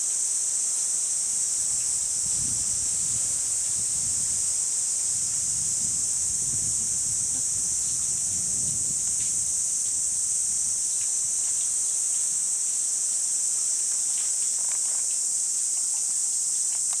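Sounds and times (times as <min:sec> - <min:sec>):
insects droning: 0:00.0 - 0:17.0
faint ticks: 0:13.8 - 0:17.0.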